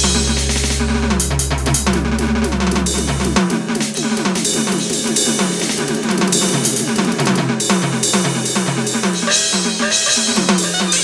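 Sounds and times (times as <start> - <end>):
low droning bass note: 0.0 - 3.8
art punk instrumental: 0.0 - 11.0.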